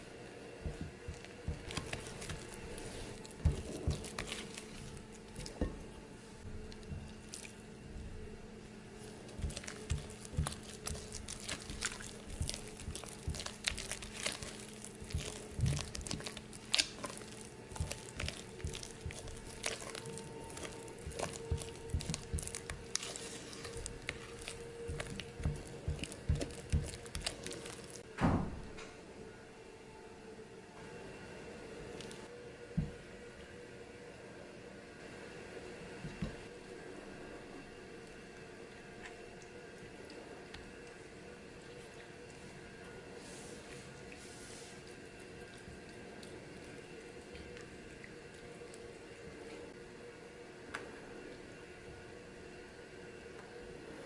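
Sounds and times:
faint steady hum: 0:00.0 - 0:54.0
low thump: 0:28.2 - 0:28.8.

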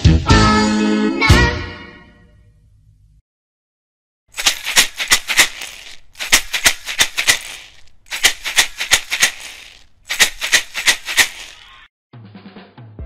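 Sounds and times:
shaker rattling: 0:04.3 - 0:11.8.

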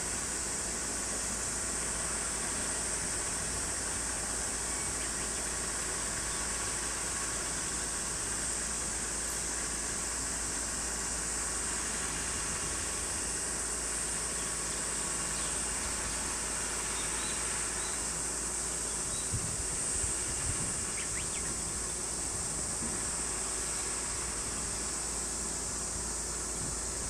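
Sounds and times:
cicadas droning: 0:00.0 - 0:27.0.

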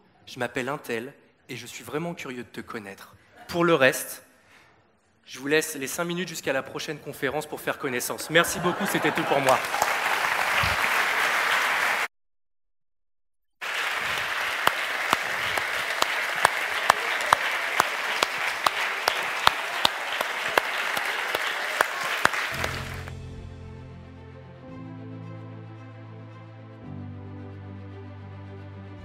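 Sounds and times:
audience applause: 0:08.3 - 0:12.1, 0:13.6 - 0:23.2
soft music: 0:22.5 - 0:29.0.

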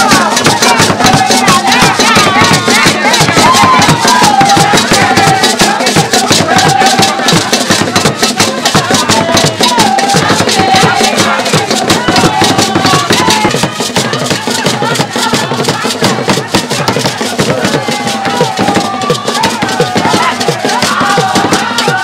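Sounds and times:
fast dense drumming: 0:00.0 - 0:22.0
gourd rattles shaking: 0:00.0 - 0:22.0
group singing: 0:00.0 - 0:22.0.

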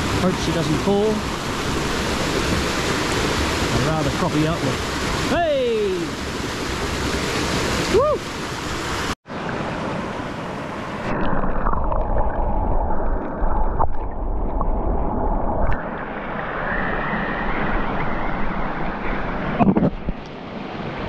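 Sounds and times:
creek water running over rocks: 0:00.0 - 0:09.8.

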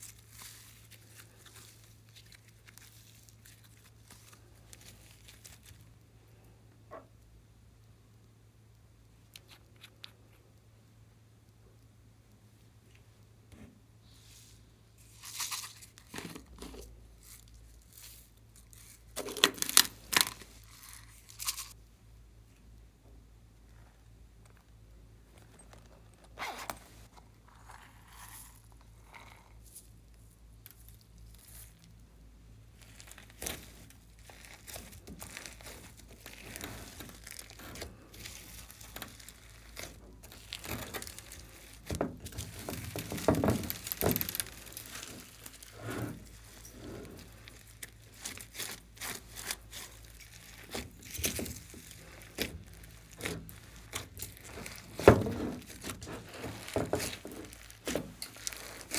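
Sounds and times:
slime crackling and squishing: 0:00.0 - 0:06.0, 0:15.0 - 0:21.8, 0:25.3 - 0:58.9.

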